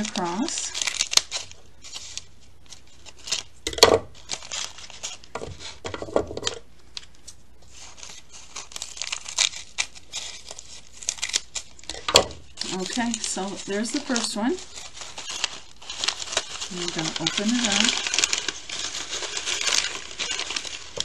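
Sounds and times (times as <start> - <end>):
scissors snipping paper: 0.0 - 2.3, 7.9 - 12.0, 12.6 - 21.0
paper crinkling and rustling: 0.0 - 21.0.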